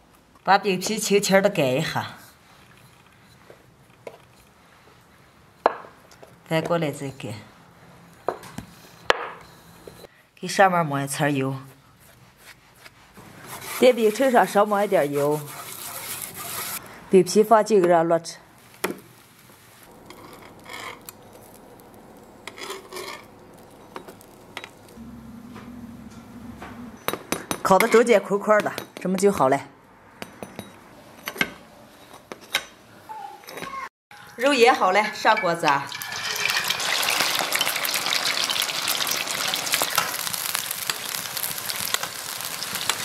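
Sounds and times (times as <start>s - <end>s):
metal spatula scraping griddle: 13.2s - 16.8s, 19.9s - 27.2s
meat deep-frying in hot oil: 19.9s - 25.0s, 35.6s - 43.0s.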